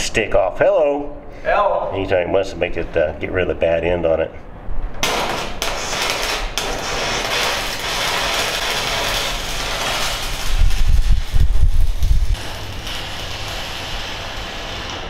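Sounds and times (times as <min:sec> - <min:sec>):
welding arc crackling and hissing: 0:05.0 - 0:15.0.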